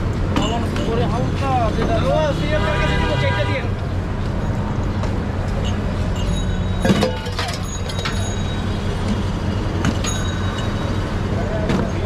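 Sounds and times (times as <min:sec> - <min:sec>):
street traffic hum: 0:00.0 - 0:12.0
bottles and steel vessels clinking: 0:05.6 - 0:09.0.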